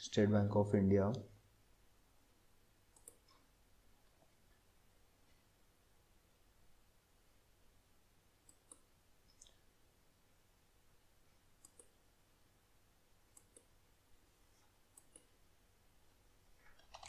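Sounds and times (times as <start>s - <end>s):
computer mouse clicks: 2.9s - 3.5s, 8.4s - 9.6s, 11.6s - 12.0s, 13.3s - 13.7s, 14.9s - 15.3s.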